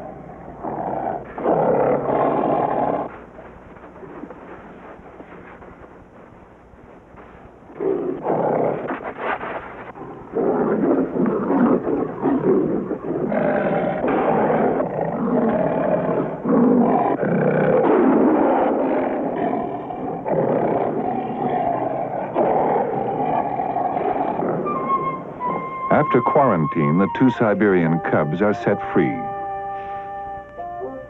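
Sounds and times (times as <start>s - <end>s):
tigers growling and snarling: 0.0s - 3.2s, 7.7s - 26.0s.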